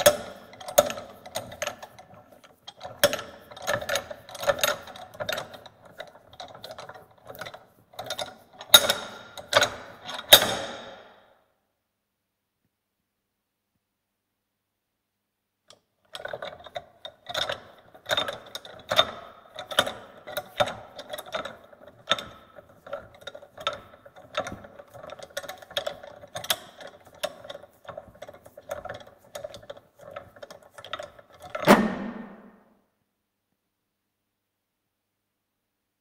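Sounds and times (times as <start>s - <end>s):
bench vise clicking and squeaking: 0.0s - 11.1s, 16.1s - 32.4s
loud metal clunk: 31.6s - 32.5s.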